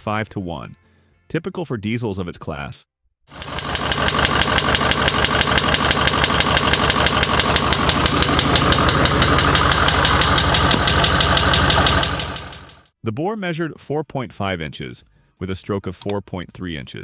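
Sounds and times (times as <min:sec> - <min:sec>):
diesel engine running: 0:03.3 - 0:12.8.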